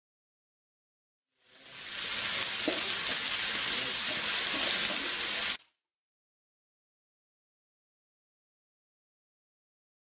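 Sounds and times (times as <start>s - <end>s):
chicken sizzling in oil: 1.3s - 5.7s.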